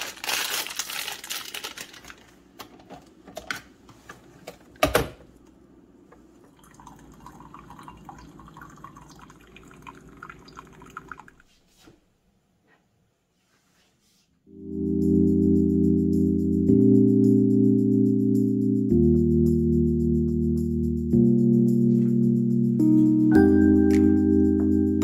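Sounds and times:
coffee maker pump hum: 6.1s - 11.4s
coffee pouring into a mug: 6.5s - 11.4s.

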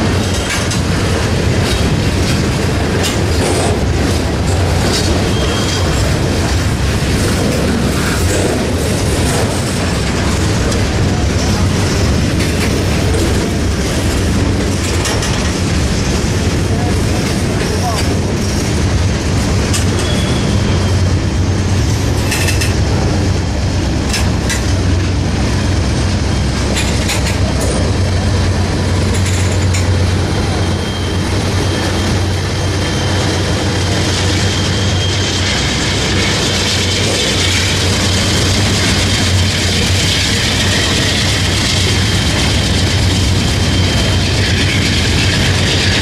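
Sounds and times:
wheels clicking over rail joints: 0.0s - 20.6s, 21.9s - 23.2s, 24.0s - 25.2s, 26.6s - 30.5s
train wheels rumbling on rails: 0.0s - 46.0s
thin high squeal: 20.0s - 21.0s.

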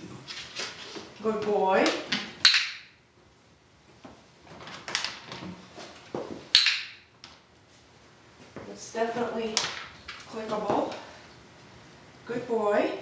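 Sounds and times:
dog training clicker clicking: 1.9s - 2.8s, 6.5s - 6.9s.

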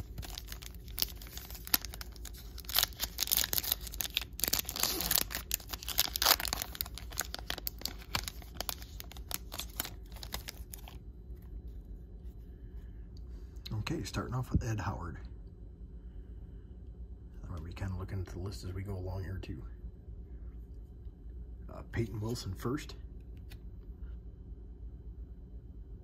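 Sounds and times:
card pack wrapper crinkling and tearing: 0.0s - 11.0s
cards rustling: 0.0s - 11.0s.

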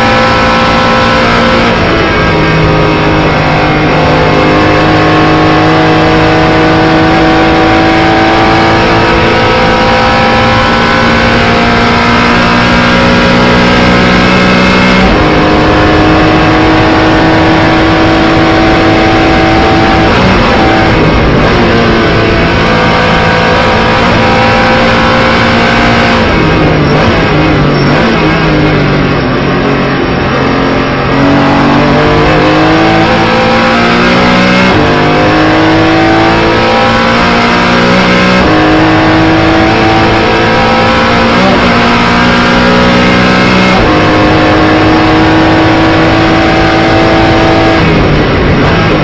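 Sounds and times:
car engine at full throttle: 0.0s - 49.0s.

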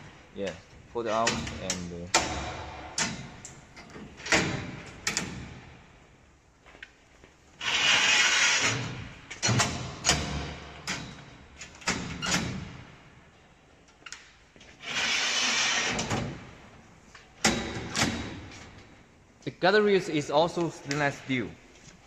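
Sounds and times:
metal rail sliding: 7.6s - 12.1s, 14.8s - 16.4s.

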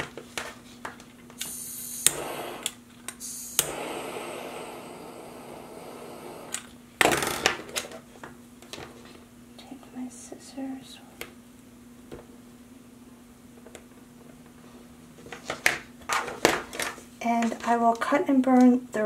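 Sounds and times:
torch lighter clicking: 1.4s - 4.0s
torch flame hissing: 1.4s - 6.8s.

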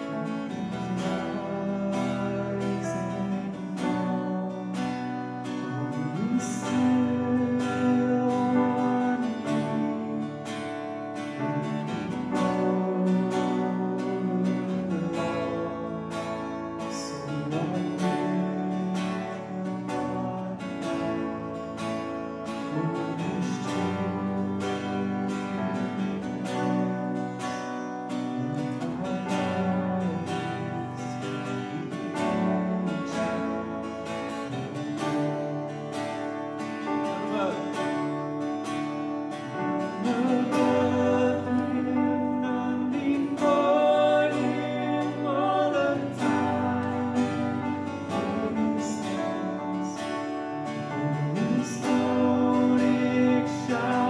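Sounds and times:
person singing: 0.0s - 21.8s, 22.4s - 38.1s, 39.5s - 54.0s
acoustic guitar strumming: 0.0s - 54.0s.

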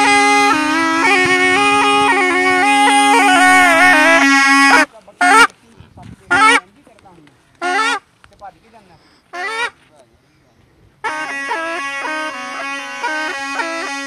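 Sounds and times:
short honking blasts: 0.0s - 5.5s, 11.0s - 14.0s
reedy gourd pipe melody: 0.0s - 6.8s, 7.6s - 8.0s, 8.8s - 14.0s.

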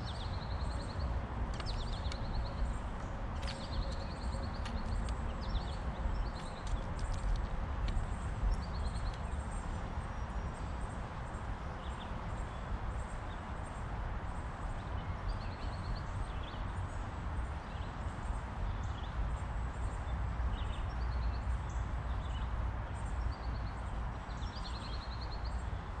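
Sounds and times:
steady low rumble: 0.0s - 13.1s
songbirds chirping and trilling: 0.0s - 26.0s.

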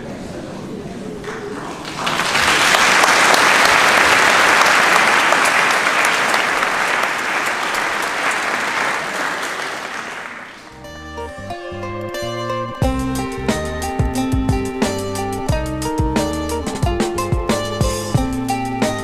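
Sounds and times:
congregation applauding: 1.2s - 10.8s
plucked string music: 10.7s - 19.0s.

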